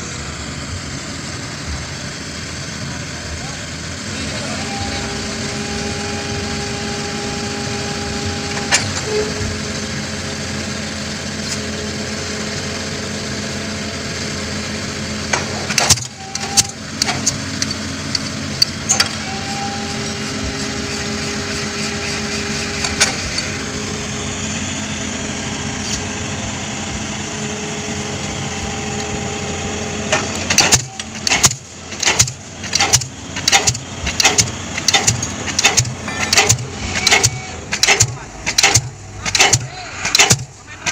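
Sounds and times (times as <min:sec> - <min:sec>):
excavator diesel engine running: 0:00.0 - 0:40.9
pile hammer blows: 0:30.1 - 0:40.9
sharp metal clanks: 0:30.1 - 0:40.9.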